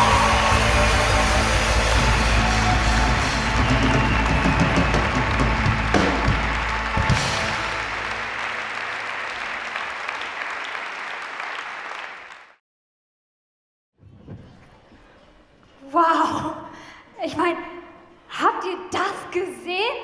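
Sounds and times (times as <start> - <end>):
band music: 0.0 - 9.2
audience applauding: 0.0 - 12.6.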